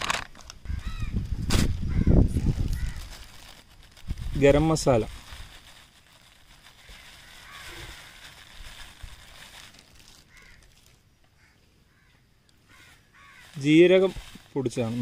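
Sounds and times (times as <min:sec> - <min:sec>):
powdered spice pouring: 0:02.4 - 0:11.0, 0:13.2 - 0:15.0.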